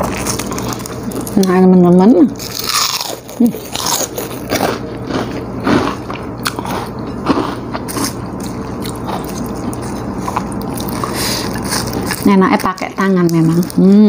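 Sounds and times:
crackers crunching: 0.0s - 14.0s
close chewing: 2.5s - 12.3s.

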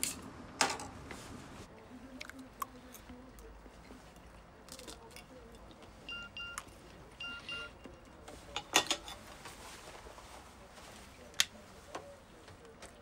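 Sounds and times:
cutlery and dishes clinking: 8.3s - 9.5s.

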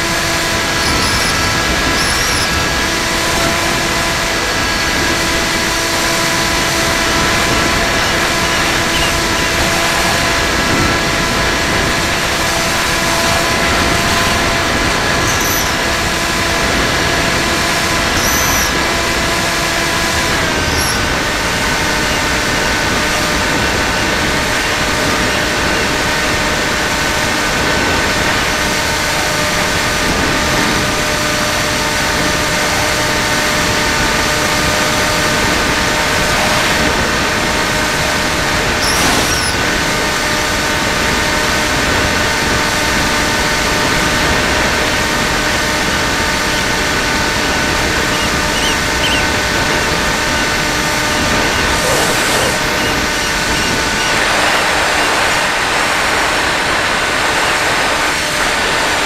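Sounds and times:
model plane motor whining: 0.0s - 59.0s
faint high chirps: 0.8s - 2.5s, 48.1s - 49.4s
airflow rushing: 44.2s - 57.2s.

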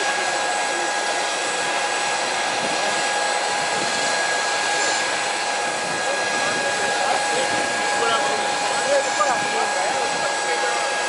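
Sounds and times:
jet turbine whine: 0.0s - 11.0s.

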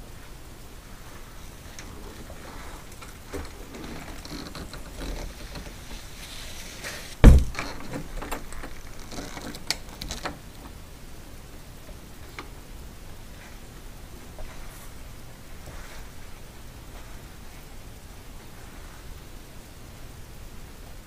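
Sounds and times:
rustling: 0.0s - 10.8s, 13.2s - 20.1s
door thump: 7.2s - 8.0s.

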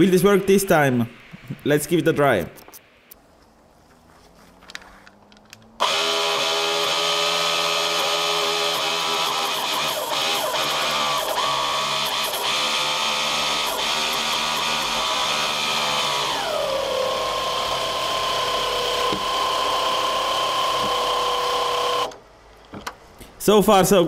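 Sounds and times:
sharp clicks: 2.3s - 3.5s
motor driven water pump whining: 5.6s - 22.2s.

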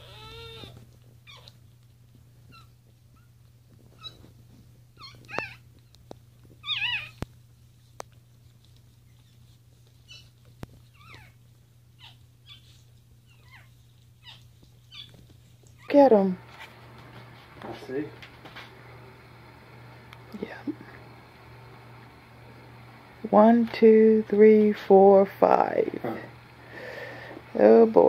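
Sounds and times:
puppies squeaking and whimpering: 0.0s - 1.6s, 2.5s - 4.4s, 5.0s - 5.7s, 6.6s - 7.2s, 10.0s - 15.2s
steady low hum: 0.0s - 28.0s.

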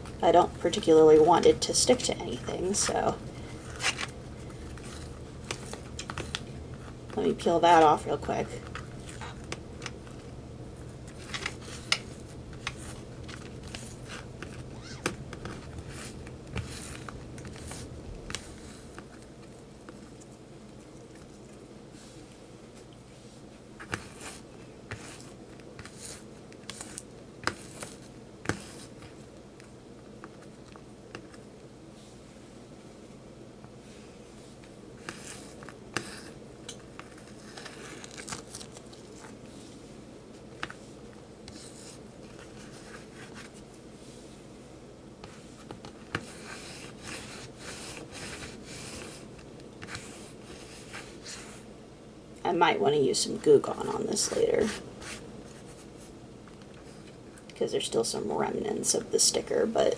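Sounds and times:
rubbing and scraping strokes: 45.2s - 51.6s.

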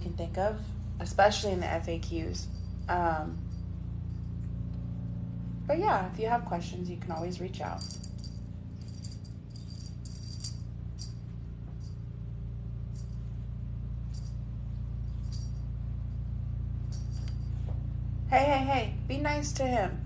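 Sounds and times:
steady low hum: 0.0s - 20.0s
cat toy jingling: 7.1s - 12.0s, 15.0s - 15.7s.

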